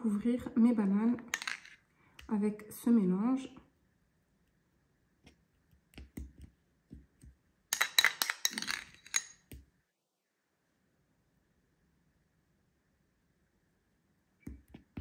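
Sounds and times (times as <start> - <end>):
metal spoon clinking on glass jar: 7.8 - 9.5.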